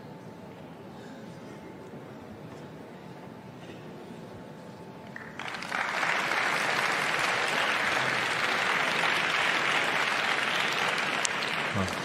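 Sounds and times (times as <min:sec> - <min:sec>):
audience applauding: 0:05.1 - 0:12.0.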